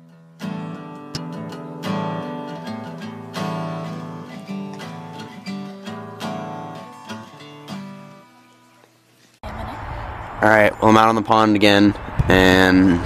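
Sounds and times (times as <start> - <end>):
strummed acoustic guitar: 0.0 - 8.9.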